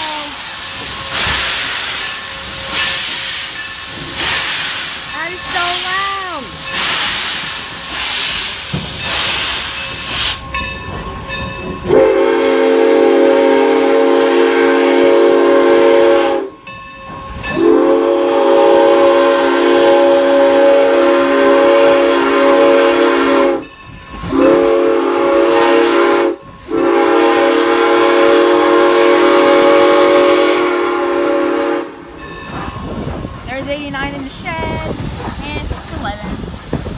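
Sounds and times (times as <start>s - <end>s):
steady hiss of steam: 0.0s - 36.9s
steam locomotive exhaust chuffing: 0.0s - 36.9s
steam whistle blasts: 11.9s - 16.6s, 17.4s - 32.2s.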